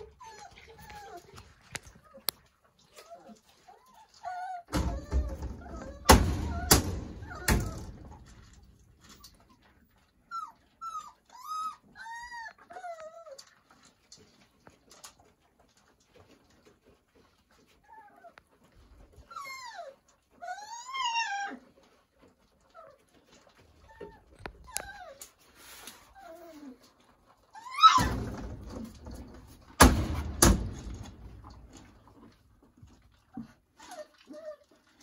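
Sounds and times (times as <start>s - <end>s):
puppies whining: 0.0s - 14.4s, 16.0s - 35.0s
sharp knocks: 29.8s - 31.0s.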